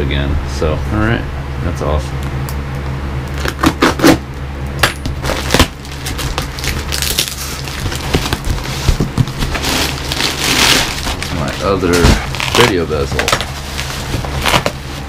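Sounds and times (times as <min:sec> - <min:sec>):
packing crinkling and rustling: 0:05.2 - 0:15.0
knocks on cardboard box: 0:07.8 - 0:09.6.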